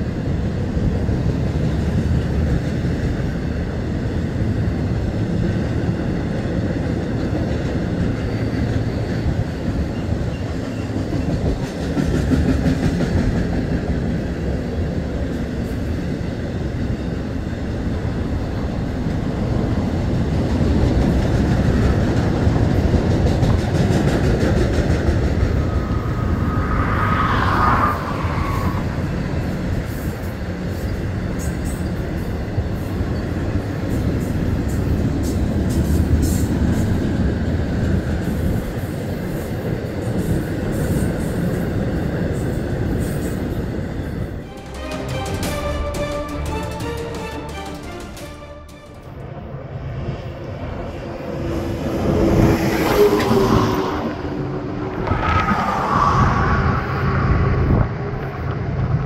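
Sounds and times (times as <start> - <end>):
train wheels rumbling on rail: 0.0 - 59.0
high squeal of train wheels: 7.9 - 12.4, 23.9 - 37.0, 38.2 - 45.2, 51.8 - 58.0.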